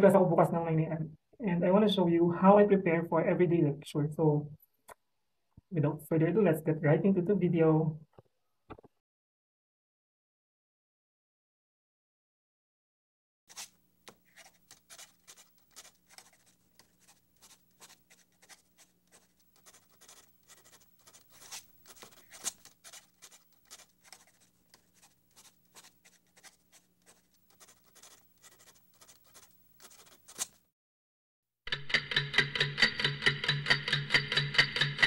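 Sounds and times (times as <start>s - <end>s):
pen scratching on paper: 13.5s - 30.6s.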